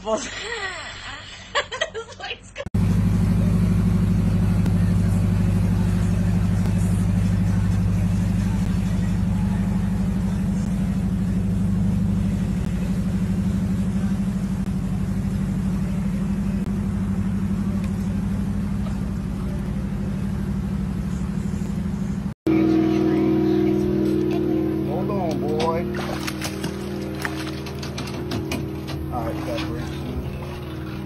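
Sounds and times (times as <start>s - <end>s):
motorboat engine droning: 2.8s - 31.0s.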